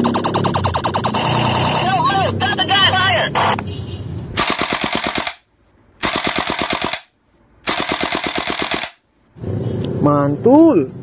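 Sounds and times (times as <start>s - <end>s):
rifle firing full auto bursts: 4.4s - 5.4s, 6.0s - 9.0s.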